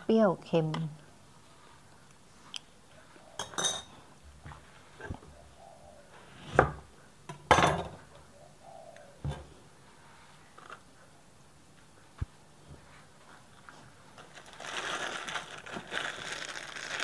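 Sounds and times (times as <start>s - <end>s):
plastic bag rustling in a bowl: 13.6s - 17.0s.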